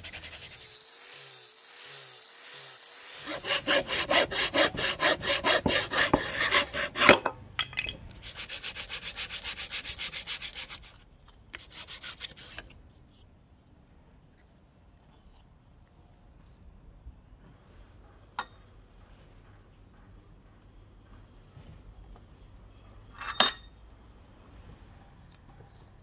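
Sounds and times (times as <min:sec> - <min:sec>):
knife scraping wood: 0:03.0 - 0:07.2.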